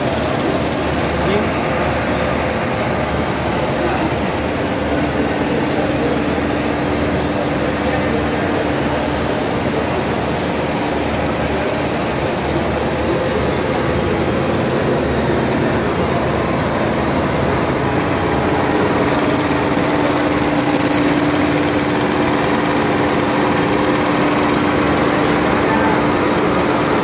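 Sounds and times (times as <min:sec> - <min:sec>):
knitting machine clattering: 0:13.1 - 0:27.0.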